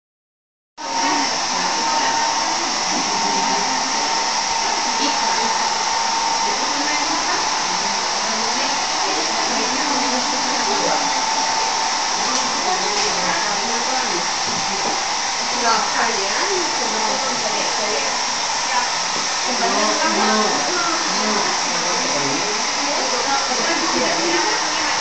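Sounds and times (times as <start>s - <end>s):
hot-air blower running: 0.8s - 25.0s.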